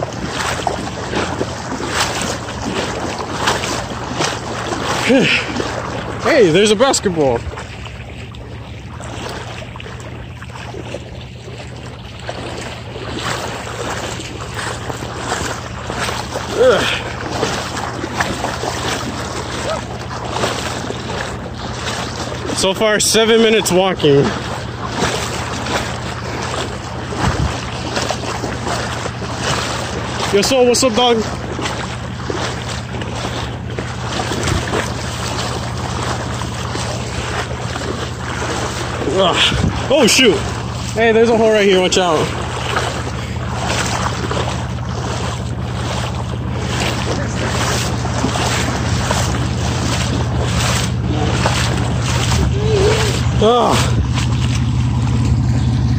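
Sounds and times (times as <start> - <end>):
wading through shallow water: 0.0 - 55.9
wind rumble on microphone: 24.2 - 30.4, 31.4 - 41.0, 42.3 - 55.9.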